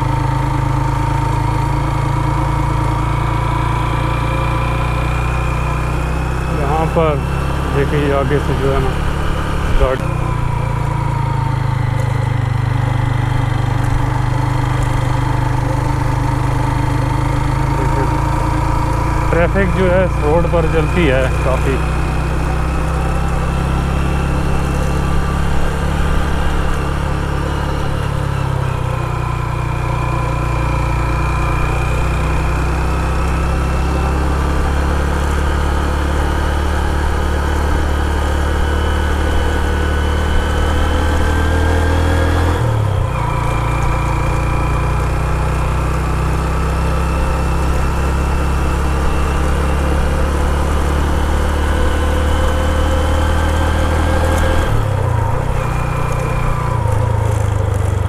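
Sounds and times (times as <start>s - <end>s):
motorcycle engine running: 0.0s - 58.0s.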